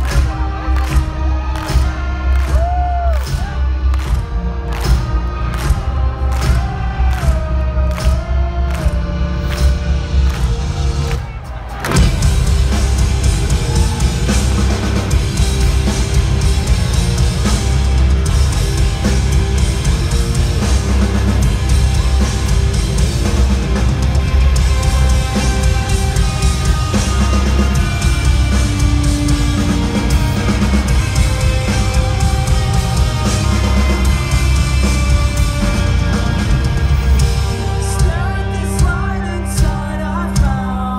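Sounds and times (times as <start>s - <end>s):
bass guitar: 0.0s - 40.9s
distorted electric guitars: 0.0s - 40.9s
drum kit: 0.0s - 40.9s.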